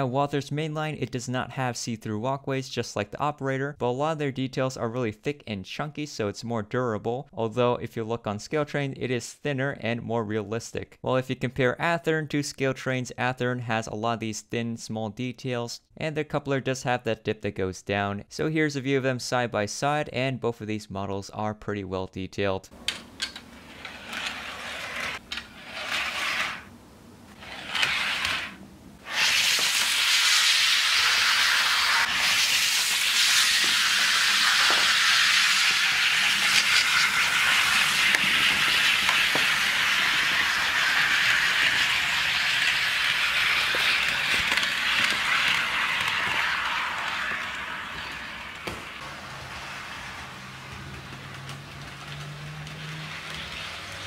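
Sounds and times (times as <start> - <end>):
model train wheels rattling on rails: 22.9 - 26.7, 29.2 - 54.0.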